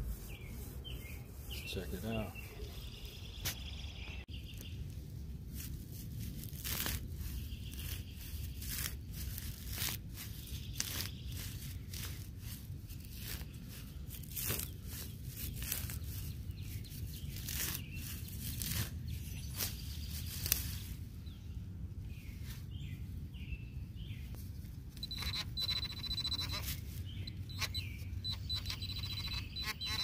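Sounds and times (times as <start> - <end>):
hand digger cutting turf: 5.6 - 20.9, 25.0 - 30.0.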